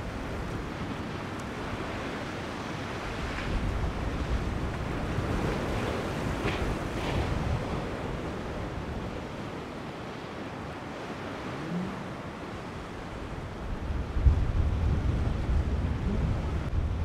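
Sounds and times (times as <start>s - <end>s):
wind buffeting microphone: 0.0s - 17.0s
surf breaking: 2.9s - 9.8s.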